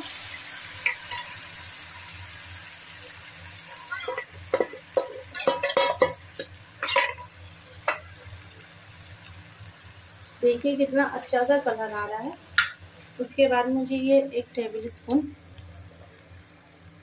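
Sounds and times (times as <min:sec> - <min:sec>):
sizzling in a hot wok: 0:00.0 - 0:17.0
metal spoon scraping and clinking: 0:00.8 - 0:01.4, 0:03.7 - 0:08.0.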